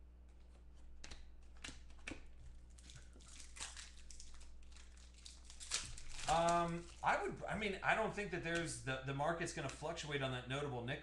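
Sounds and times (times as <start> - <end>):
foil wrapper crinkling and tearing: 1.5 - 7.2.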